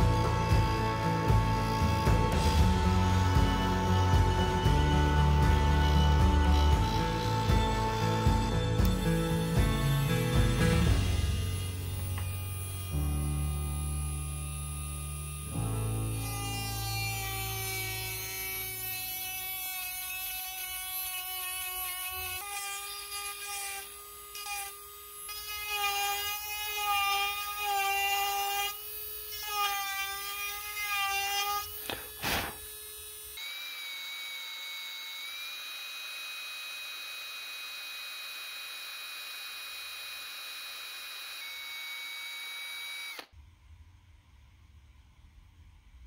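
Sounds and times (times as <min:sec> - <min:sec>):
rotary tool grinding wood: 0:00.0 - 0:43.3.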